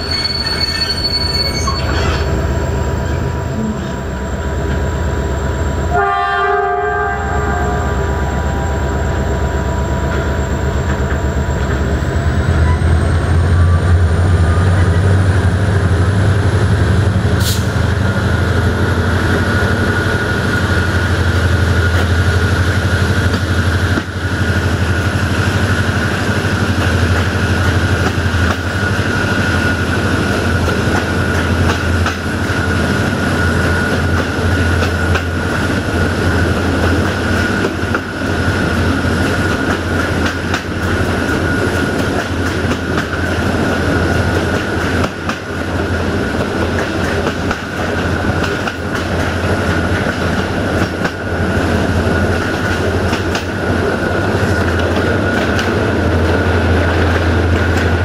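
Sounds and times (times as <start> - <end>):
high-pitched wheel squeal: 0.0 - 2.4
train low rumble: 0.0 - 58.0
train wheels clickety-clack on rails: 4.6 - 4.9, 10.0 - 58.0.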